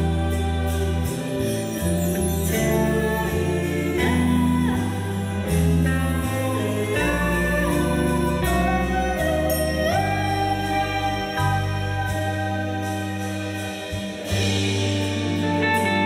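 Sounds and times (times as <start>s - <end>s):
live band with strings: 0.0s - 16.0s
woman singing into a microphone: 2.5s - 13.8s.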